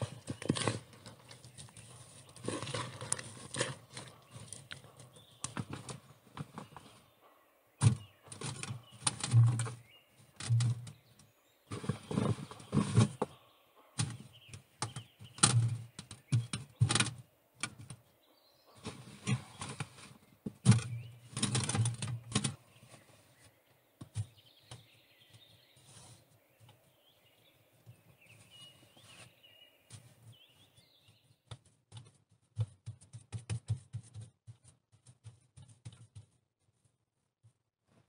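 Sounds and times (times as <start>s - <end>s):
faint bird chirping: 0.0s - 31.6s.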